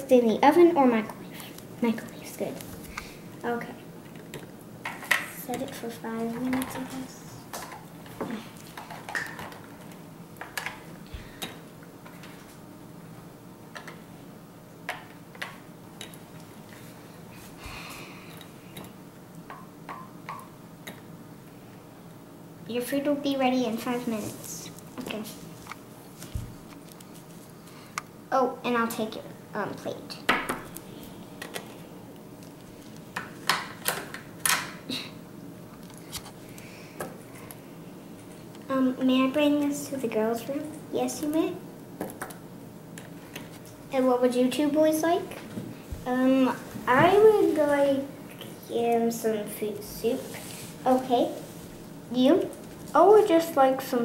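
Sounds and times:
faint steady hum: 0:00.0 - 0:54.0
plastic toys clicking and tapping: 0:08.6 - 0:12.4.

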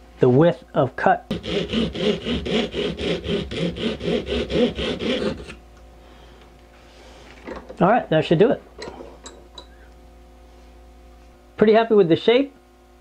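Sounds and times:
hacksaw sawing coconut shell: 0:01.3 - 0:05.6.

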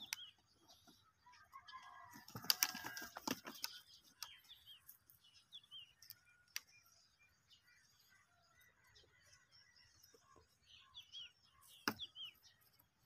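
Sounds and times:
small birds chirping: 0:00.0 - 0:13.0
goat muzzle rustling against phone: 0:02.1 - 0:06.0.

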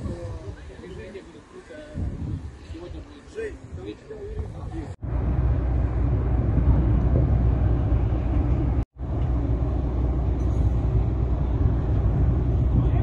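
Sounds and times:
electric locomotive rumbling: 0:05.0 - 0:13.0.

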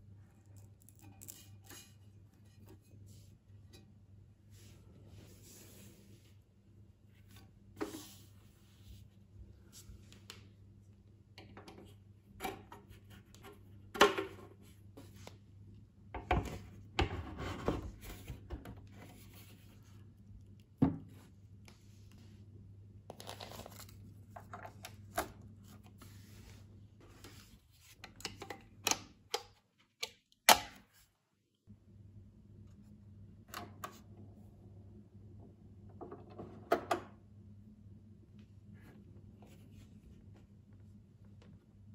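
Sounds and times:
faint low hum: 0:31.3 - 0:41.9.

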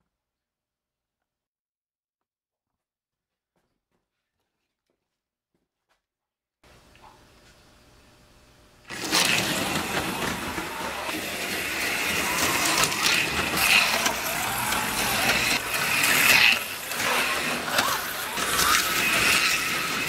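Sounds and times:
small electric motors whining: 0:07.6 - 0:20.0
slot cars whirring and clicking: 0:07.8 - 0:20.0.

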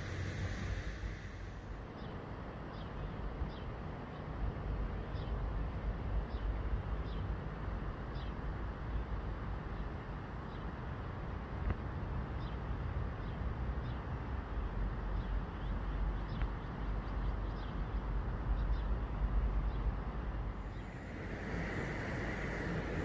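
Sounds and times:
stream rumbling: 0:00.0 - 0:01.9, 0:20.0 - 0:23.0
steady hiss: 0:00.0 - 0:02.1, 0:20.3 - 0:23.0
faint bird chirps: 0:20.5 - 0:23.0.

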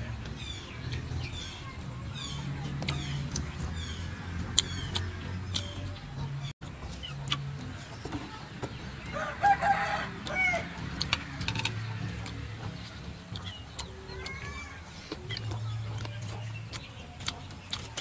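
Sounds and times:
chopsticks clicking and eating: 0:00.0 - 0:18.0
rooster crowing: 0:09.1 - 0:10.7.

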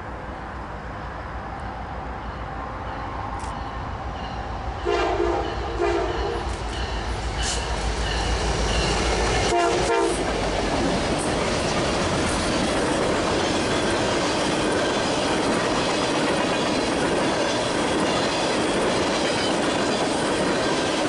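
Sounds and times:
train air horn blasts: 0:04.8 - 0:06.5, 0:09.5 - 0:10.3.

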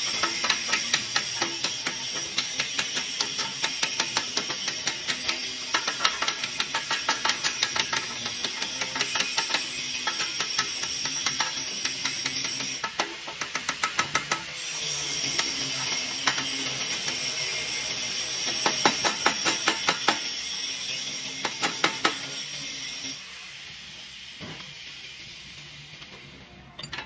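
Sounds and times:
hammer tapping metal clamps: 0:00.1 - 0:14.5.

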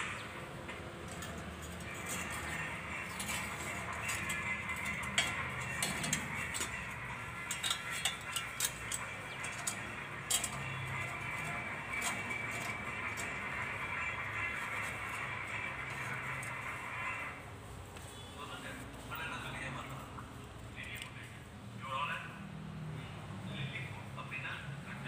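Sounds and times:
small metal parts clicking: 0:01.0 - 0:13.5.

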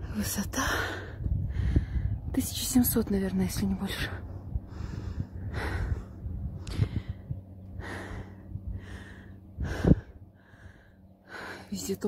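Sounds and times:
low rumble: 0:00.0 - 0:12.0
person breathing heavily: 0:00.6 - 0:02.3, 0:04.2 - 0:11.8.

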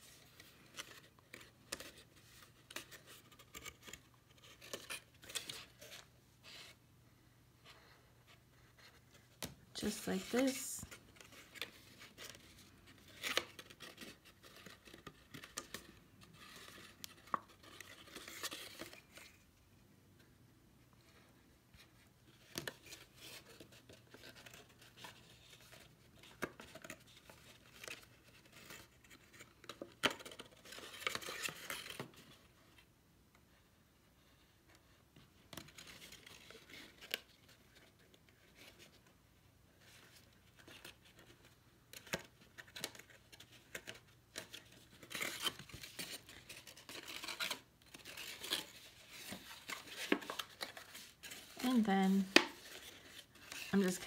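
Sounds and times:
card stock rustling and scraping: 0:39.7 - 0:54.0.

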